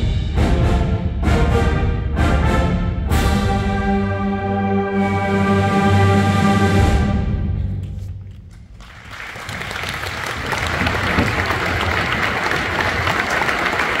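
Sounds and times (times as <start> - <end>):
audience applauding: 8.7 - 14.0.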